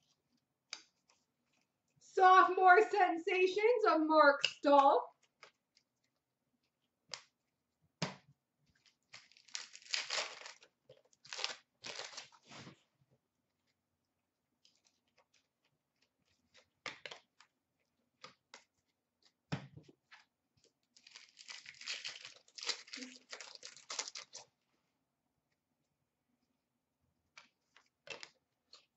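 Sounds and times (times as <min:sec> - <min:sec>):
wrapper tearing and crinkling: 0:08.8 - 0:12.5, 0:21.0 - 0:24.5.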